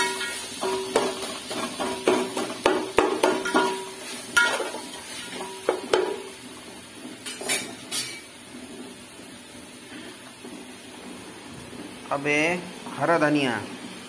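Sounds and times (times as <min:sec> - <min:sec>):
metal spatula clanking in pot: 0:00.0 - 0:06.2.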